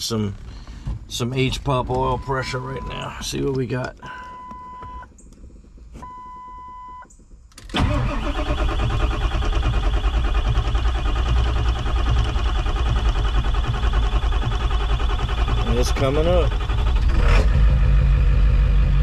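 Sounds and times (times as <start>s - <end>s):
diesel engine cranking without starting: 7.0s - 19.0s.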